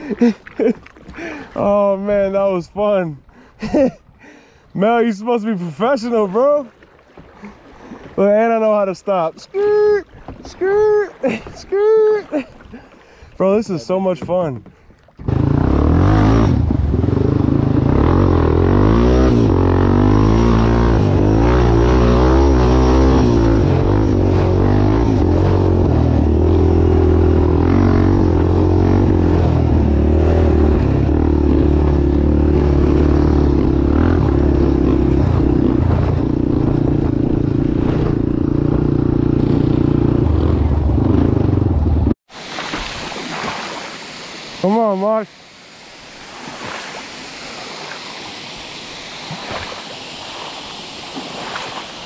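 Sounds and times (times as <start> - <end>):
off-road vehicle engine running: 15.2 - 42.2.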